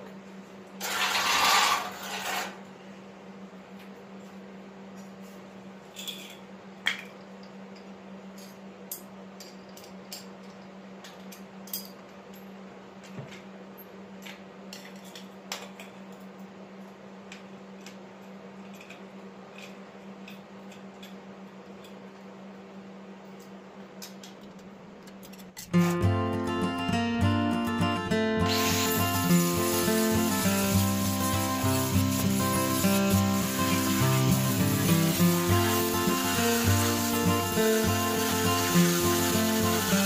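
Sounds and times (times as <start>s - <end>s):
metal parts clinking on concrete: 5.9s - 7.2s, 8.4s - 12.5s, 17.8s - 19.8s.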